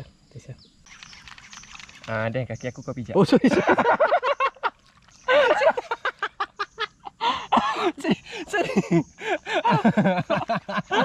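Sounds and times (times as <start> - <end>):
people talking: 2.1 - 4.0, 7.2 - 9.0.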